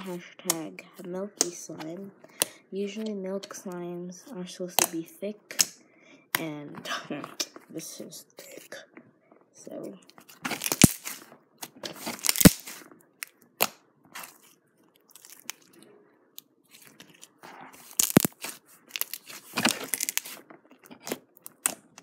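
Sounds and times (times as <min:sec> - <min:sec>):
slime crackling and popping: 0:10.4 - 0:11.3, 0:12.0 - 0:15.8, 0:16.7 - 0:20.4, 0:21.0 - 0:22.0.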